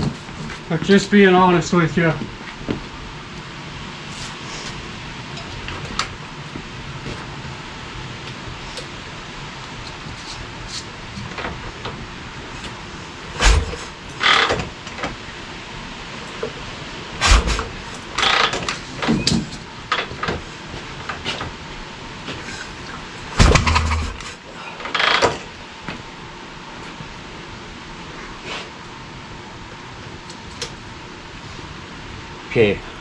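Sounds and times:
short bursts of engine noise: 0:17.2 - 0:18.5
motorcycle kick-start thumps: 0:23.4 - 0:24.4.

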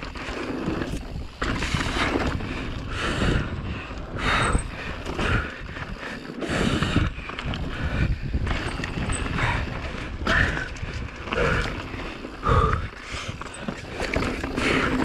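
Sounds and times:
bike rattling over bumps: 0:00.0 - 0:15.0
tyre noise on dirt: 0:00.0 - 0:15.0
wind rushing over microphone: 0:00.0 - 0:15.0.

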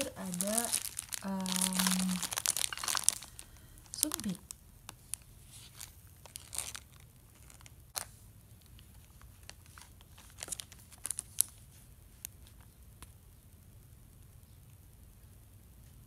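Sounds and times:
plastic packaging crinkling: 0:00.0 - 0:12.6.

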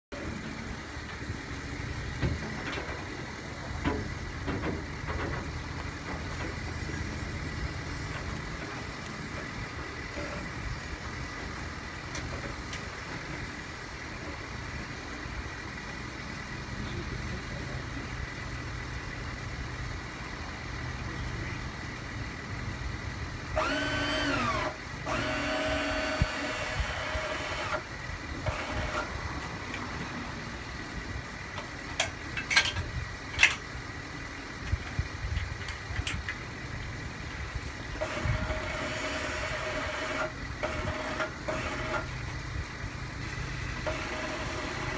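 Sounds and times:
winch motor whining: 0:23.6 - 0:29.2, 0:37.9 - 0:42.3, 0:43.8 - 0:44.9.

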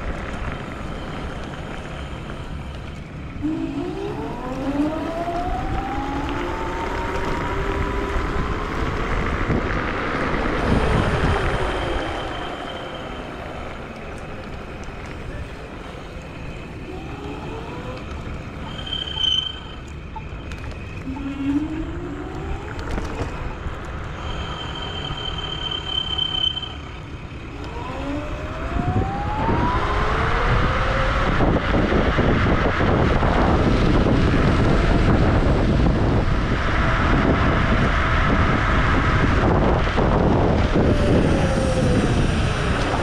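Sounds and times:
wind rushing over microphone: 0:00.0 - 0:18.6, 0:26.8 - 0:43.0
electric scooter motor whining: 0:01.4 - 0:13.8.

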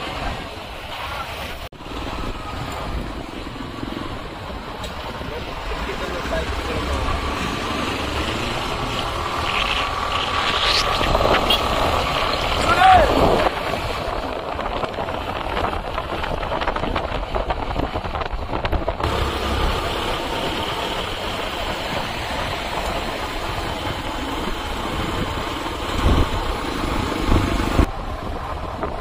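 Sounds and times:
road and wind noise: 0:00.0 - 0:29.0
pickup engine running: 0:18.7 - 0:29.0.

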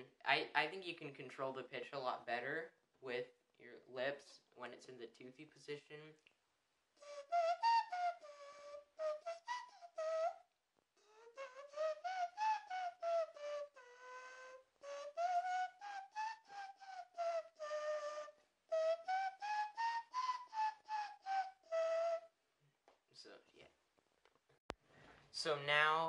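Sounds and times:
inward tooth whistle beatbox: 0:07.0 - 0:10.4, 0:11.0 - 0:22.3.

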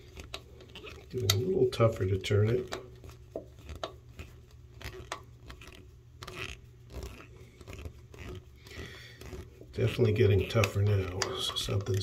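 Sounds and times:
screwdriver clicks and scrapes: 0:03.5 - 0:12.0.

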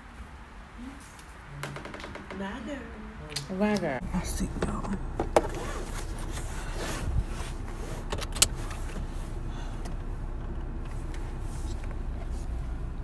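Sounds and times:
car cabin rumble: 0:04.0 - 0:13.0.

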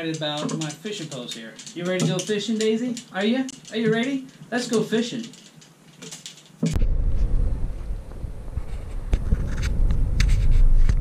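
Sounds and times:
small ticks and clicks: 0:00.0 - 0:06.7.

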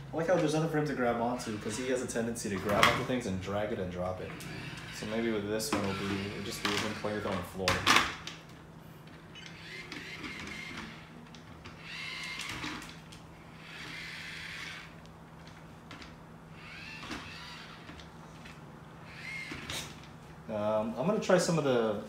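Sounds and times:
steady low hum: 0:00.0 - 0:22.0
small wheel motors whirring: 0:00.4 - 0:03.1, 0:03.9 - 0:07.7, 0:09.1 - 0:20.1.

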